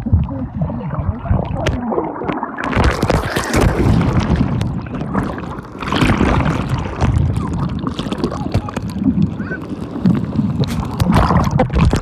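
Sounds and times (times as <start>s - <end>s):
muffled underwater churning water: 0.0s - 12.0s.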